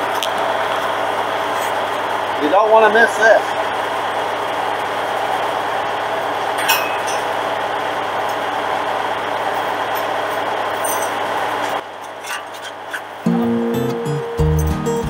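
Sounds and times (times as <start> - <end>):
loader engine running: 0.0 - 15.0
metal clinks: 6.6 - 7.4, 9.5 - 12.4.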